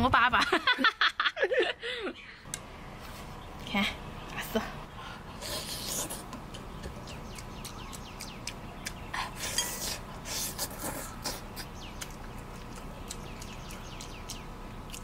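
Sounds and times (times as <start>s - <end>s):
wet chewing and lip smacking: 5.4s - 15.0s.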